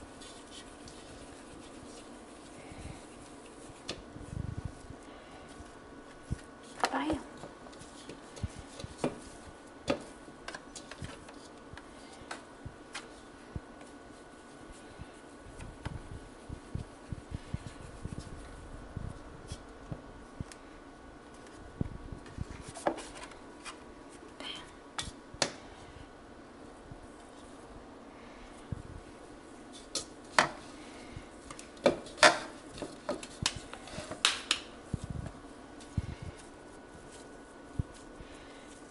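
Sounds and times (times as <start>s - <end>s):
hands scraping dough in bowl: 0.0s - 4.0s
faint steady hum: 0.0s - 38.9s.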